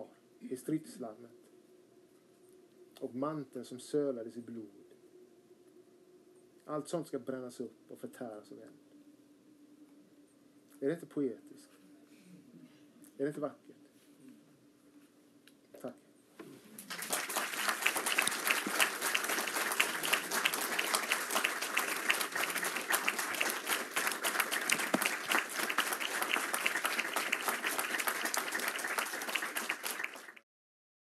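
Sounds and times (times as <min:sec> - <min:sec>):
audience applauding: 0:16.8 - 0:30.4.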